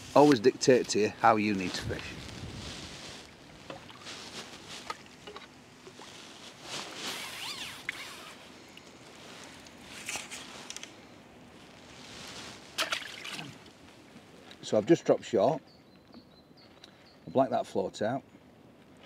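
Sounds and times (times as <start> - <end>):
fishing tackle clicking and rustling: 8.8 - 11.0.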